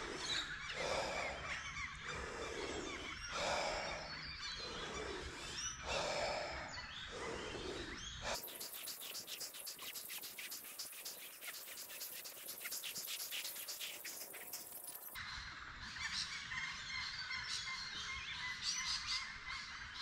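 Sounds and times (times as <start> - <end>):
forceful deep breathing: 0.0 - 9.1
birds chirping: 0.0 - 19.8
faint rapid ticking: 8.4 - 15.2.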